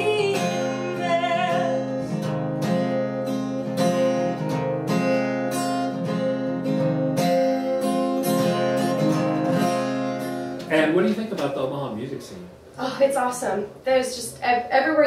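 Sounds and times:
acoustic guitar strumming: 0.0 - 11.2.

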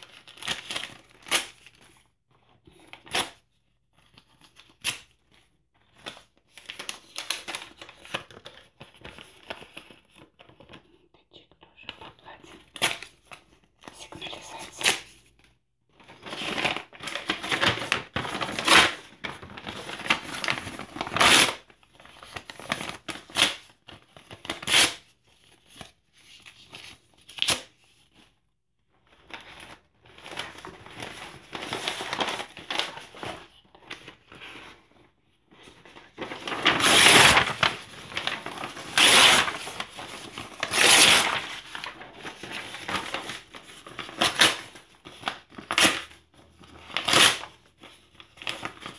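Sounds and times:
paper rustling: 14.6 - 28.4, 29.1 - 48.9
paper tearing: 36.2 - 46.1, 46.9 - 47.5.

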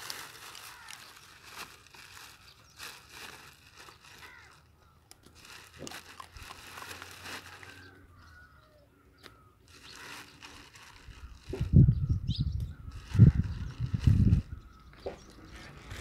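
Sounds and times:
puppy chewing in dry grass: 0.0 - 8.0.

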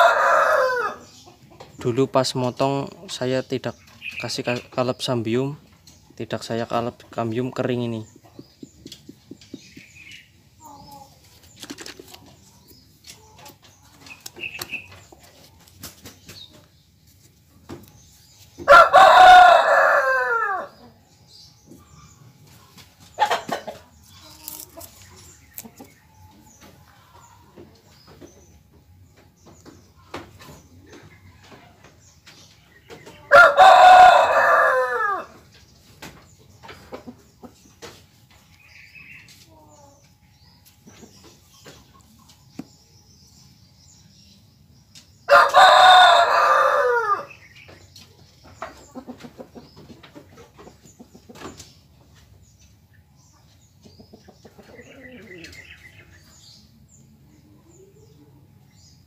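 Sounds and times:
rooster crowing: 0.0 - 1.0, 18.7 - 20.8, 33.3 - 35.4, 45.3 - 47.3.

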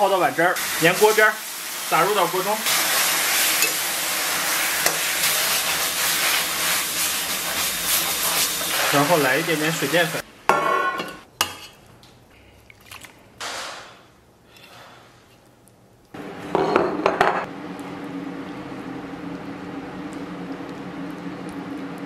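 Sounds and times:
steady hum: 17.5 - 22.0.

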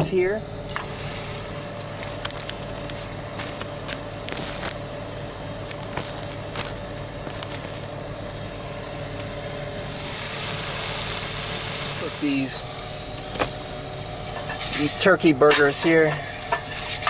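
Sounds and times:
steady low hum: 0.0 - 17.0
burger patty sizzling in pan: 0.7 - 1.8, 6.0 - 15.0.

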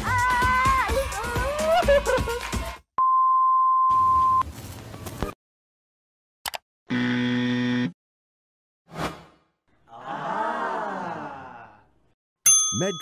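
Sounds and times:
censor bleep: 3.0 - 4.4
click: 6.4 - 6.6.

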